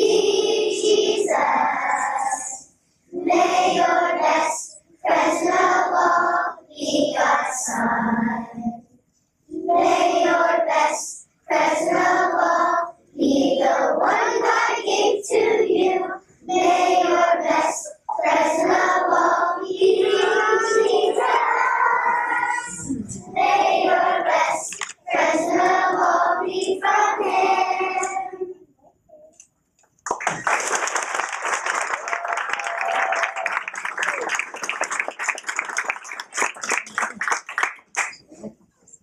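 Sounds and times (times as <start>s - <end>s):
children singing together: 0.0s - 8.8s, 9.5s - 28.6s.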